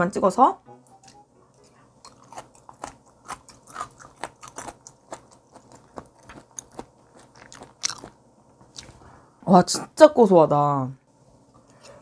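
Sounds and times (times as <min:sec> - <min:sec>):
chewing with mouth clicks: 0:01.6 - 0:09.0.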